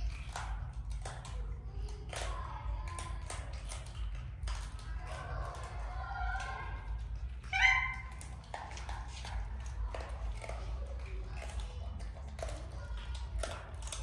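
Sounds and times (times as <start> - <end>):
baby monkey high-pitched calls: 7.4 - 8.3.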